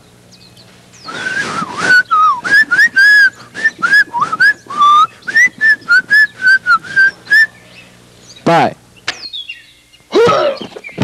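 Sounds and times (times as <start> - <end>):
breathy hiss: 1.1 - 7.0
person whistling a lively tune: 1.1 - 7.5.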